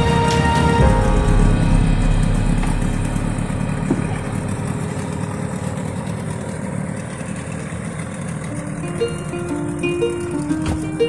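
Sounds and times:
musical notes: 0.0s - 6.3s, 8.5s - 11.0s
outboard motor drone: 0.0s - 11.0s.

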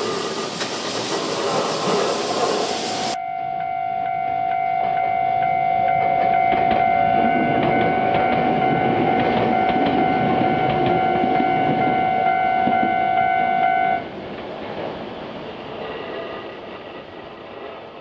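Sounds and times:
electric train running past: 0.0s - 18.0s
high-pitched steady tone: 3.2s - 14.0s.

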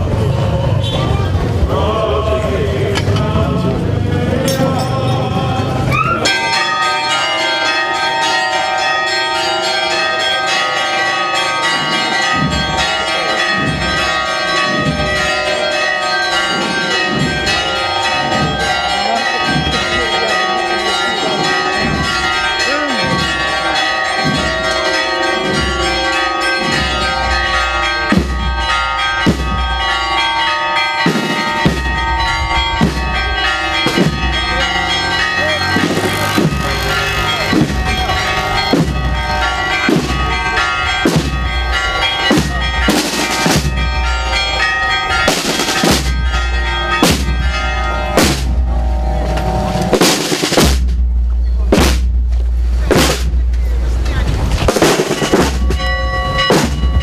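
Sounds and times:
church bells ringing: 1.3s - 51.7s, 52.5s - 57.0s.

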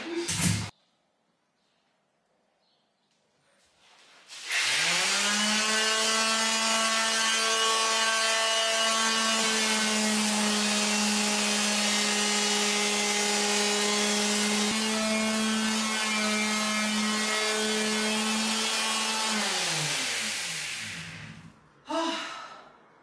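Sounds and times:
sandpaper rubbing on wood: 4.3s - 5.2s
electric sander motor humming: 4.6s - 21.4s.

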